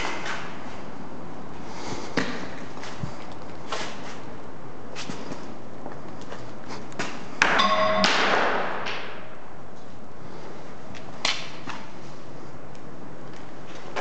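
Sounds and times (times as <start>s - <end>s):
sharp knock: 7.5s - 8.8s
short ringing tone: 7.6s - 8.6s.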